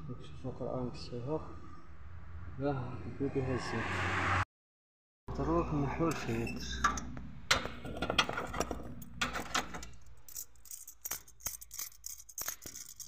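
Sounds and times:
metal wrench clinking and rattling: 0:06.8 - 0:13.0.

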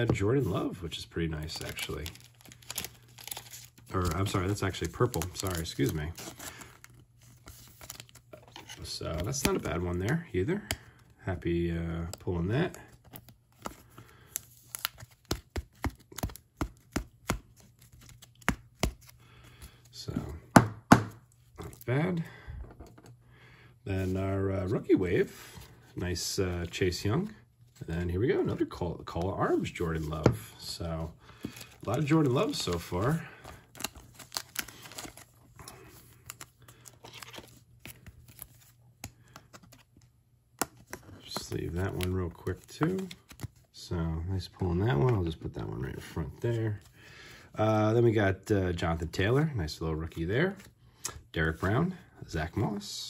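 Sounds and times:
plastic sleeve crinkling: 0:01.4 - 0:10.2, 0:29.4 - 0:39.8.

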